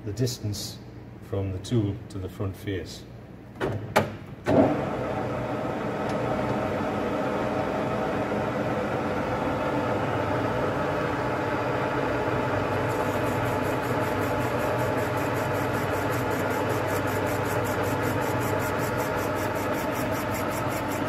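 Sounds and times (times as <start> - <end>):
metal lathe running: 12.3 - 21.0.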